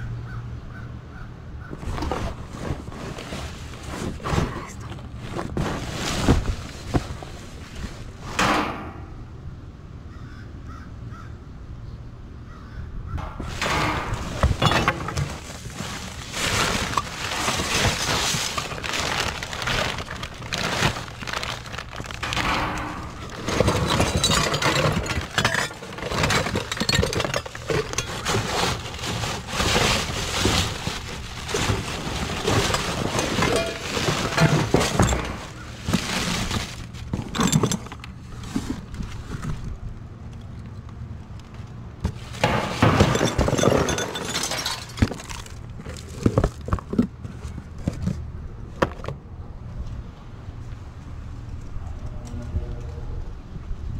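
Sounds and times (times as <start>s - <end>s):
trash rustling and crackling: 1.7s - 8.9s, 13.3s - 49.3s
items knocking and clattering: 13.2s - 39.8s, 42.0s - 49.2s.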